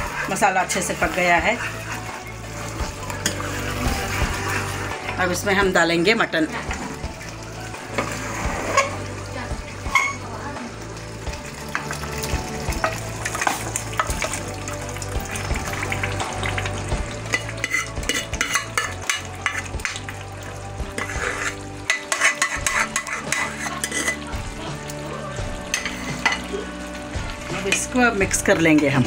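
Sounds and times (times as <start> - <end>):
meat frying and sizzling in a pan: 0.0 - 29.0
wooden spoon scraping and tapping pan: 1.9 - 4.7, 17.3 - 20.0, 20.9 - 24.3.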